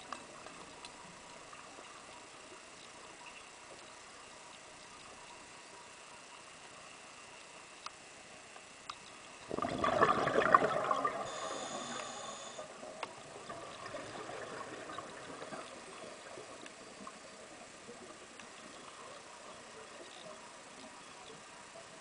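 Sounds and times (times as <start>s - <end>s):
faint ticks: 0.0s - 9.5s, 11.2s - 22.0s
underwater regulator bubbling: 9.4s - 12.2s.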